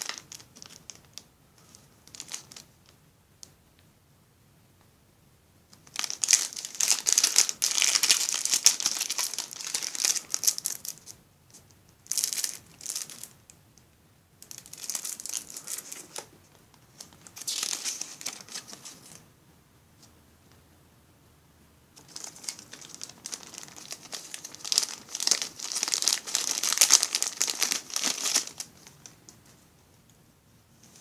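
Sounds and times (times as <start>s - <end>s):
plastic bags crinkling: 0.0s - 2.7s, 5.8s - 11.1s, 12.0s - 13.4s, 14.4s - 16.3s, 16.9s - 19.2s, 22.0s - 29.3s.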